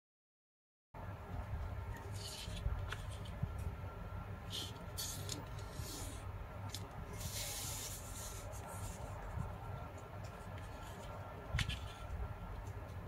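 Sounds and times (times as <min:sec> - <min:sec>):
low steady hum: 0:01.0 - 0:13.0
paper rustling and sliding: 0:02.0 - 0:03.4, 0:04.5 - 0:09.6, 0:10.2 - 0:12.8.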